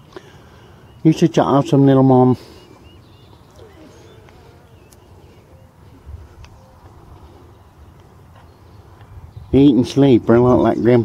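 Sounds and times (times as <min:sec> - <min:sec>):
puppies squeaking: 0:03.1 - 0:05.9.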